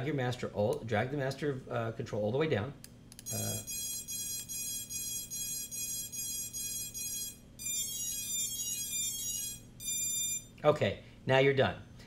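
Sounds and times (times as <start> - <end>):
short even beeps: 3.3 - 10.5.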